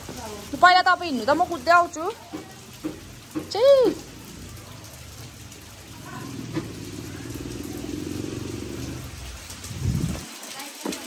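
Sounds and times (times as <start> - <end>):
motor vehicle passing: 3.0 - 10.2.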